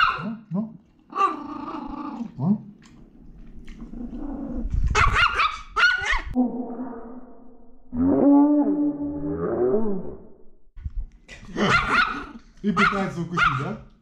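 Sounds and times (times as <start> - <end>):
dog barking shrilly: 0.0 - 0.4, 5.0 - 6.4, 11.6 - 13.8
dog growling and snarling: 1.1 - 2.7, 3.6 - 5.1.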